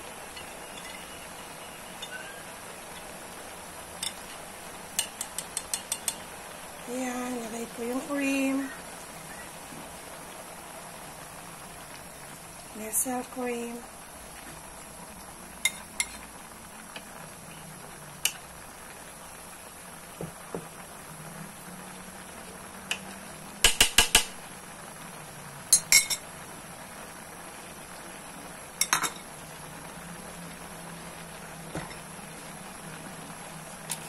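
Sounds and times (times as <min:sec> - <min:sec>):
steady background hiss: 0:00.0 - 0:34.0
metallic clinks on a wok: 0:00.3 - 0:01.2, 0:05.0 - 0:06.3.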